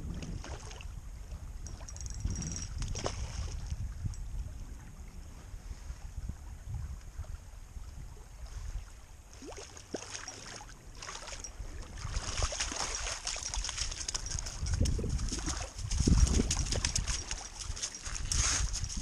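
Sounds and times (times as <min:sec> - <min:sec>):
water lapping at gravel shore: 0:00.0 - 0:01.0, 0:08.4 - 0:19.0
fish splashing in shallows: 0:09.4 - 0:14.6.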